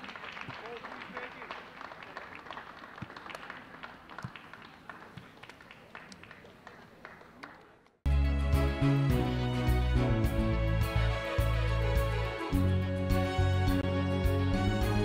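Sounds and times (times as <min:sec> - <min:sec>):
scattered clapping: 0:00.0 - 0:08.0
music: 0:08.1 - 0:15.0.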